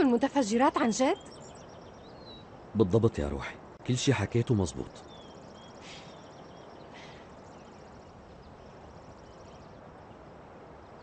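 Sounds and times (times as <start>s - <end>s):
bird chirps: 0.0s - 3.3s, 3.9s - 11.0s
low background hiss: 0.0s - 11.0s.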